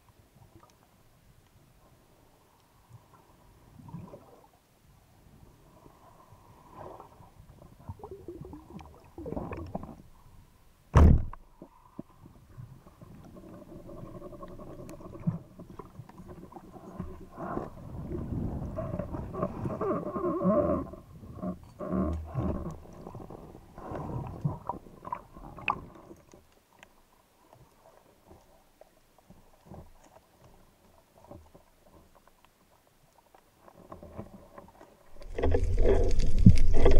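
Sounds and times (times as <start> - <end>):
underwater rumbling and knocking: 7.4 - 10.2, 11.0 - 26.4, 33.6 - 36.9.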